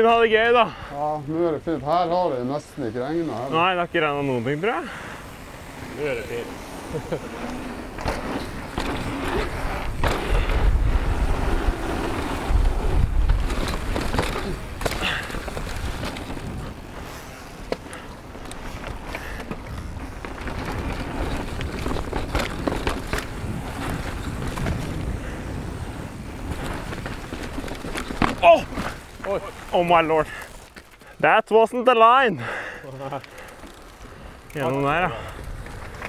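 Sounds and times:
bike rattling over bumps: 0:00.0 - 0:31.2, 0:32.4 - 0:36.0
bike tyres on gravel: 0:00.0 - 0:36.0.

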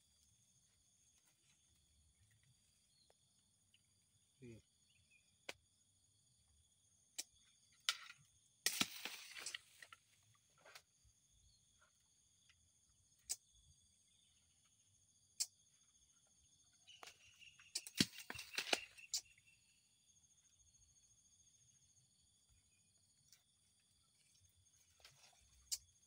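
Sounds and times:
insects droning: 0:00.0 - 0:26.0.

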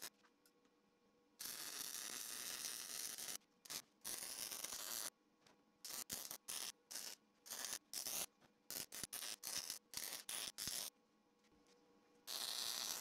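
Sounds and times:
welder arc crackling: 0:01.4 - 0:05.1, 0:12.3 - 0:13.0.

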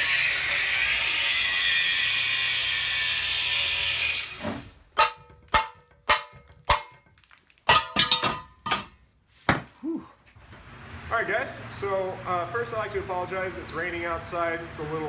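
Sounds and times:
angle grinder cutting metal: 0:00.0 - 0:06.8
sharp metal knocks: 0:05.0 - 0:09.0.

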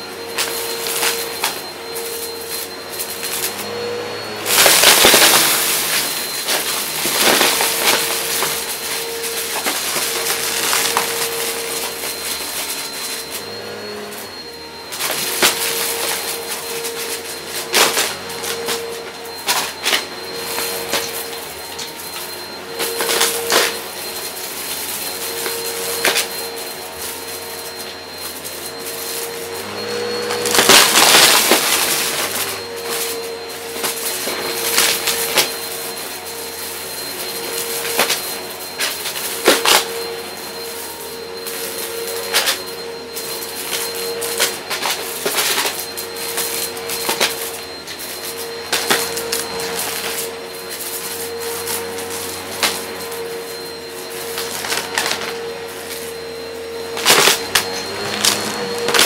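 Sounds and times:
vacuum cleaner motor hum: 0:00.0 - 0:59.0
cardboard debris rattling in vacuum: 0:00.3 - 0:14.4, 0:15.0 - 0:22.2, 0:28.7 - 0:36.1, 0:36.8 - 0:40.8, 0:54.3 - 0:56.1.

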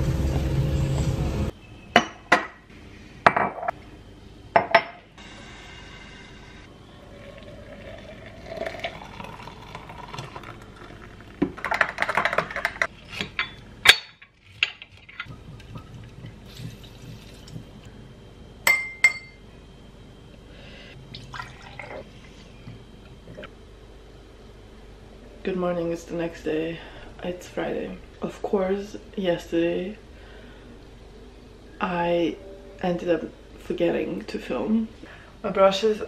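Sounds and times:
liquid poured into vessel: 0:07.2 - 0:11.6, 0:21.1 - 0:22.0
water poured into glass: 0:07.3 - 0:11.2, 0:21.2 - 0:22.0
ringing glass clink: 0:18.7 - 0:19.4.

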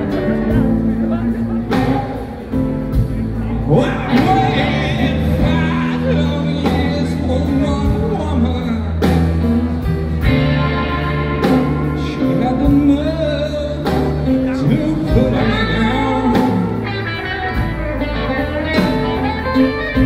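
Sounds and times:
blues rock band playing: 0:00.0 - 0:20.0
person singing: 0:03.4 - 0:09.2, 0:11.2 - 0:17.7.

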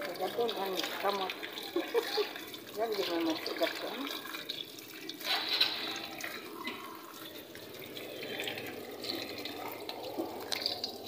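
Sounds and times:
tap water splashing over hands: 0:00.0 - 0:06.9.

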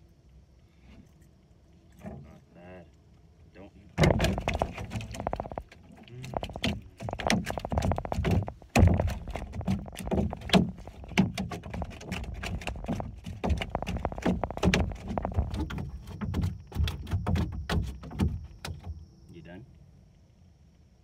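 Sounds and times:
fish flopping against boat hull: 0:04.0 - 0:19.0.

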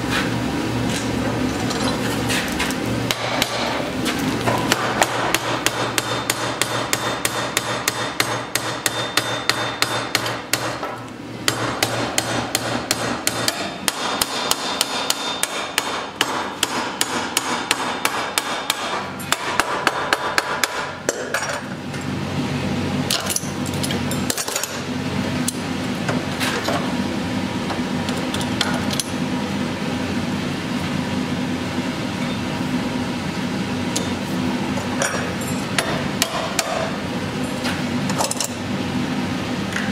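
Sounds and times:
steady low hum: 0:00.0 - 0:39.9
hammer on hot iron: 0:03.1 - 0:03.8, 0:04.6 - 0:21.4, 0:35.8 - 0:37.0.

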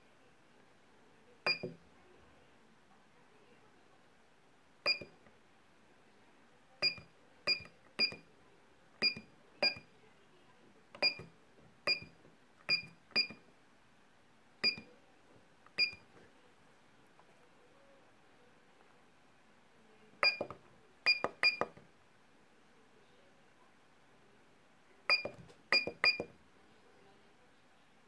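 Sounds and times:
keypad beeps: 0:01.5 - 0:01.8, 0:04.8 - 0:05.1, 0:06.8 - 0:08.2, 0:09.0 - 0:09.9, 0:11.0 - 0:11.3, 0:11.9 - 0:13.4, 0:14.6 - 0:14.9, 0:15.8 - 0:16.0, 0:20.2 - 0:21.8, 0:25.1 - 0:26.3.

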